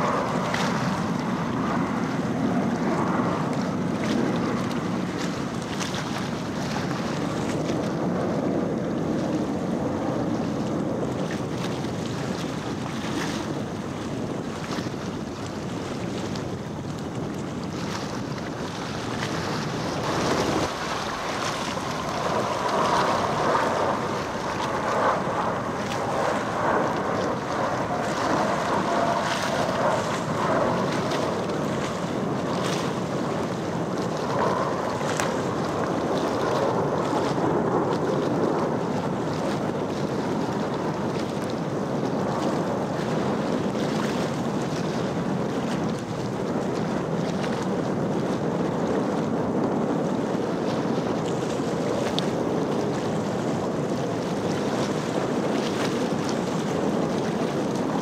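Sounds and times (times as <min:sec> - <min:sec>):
jet noise rushing: 0:19.7 - 0:32.1
jet whine falling in pitch: 0:20.1 - 0:35.8.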